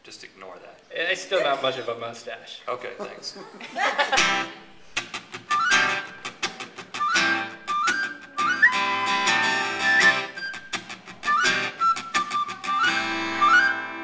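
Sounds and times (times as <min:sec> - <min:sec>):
acoustic guitar strumming: 0:04.1 - 0:14.0
high whistle melody: 0:05.5 - 0:14.0.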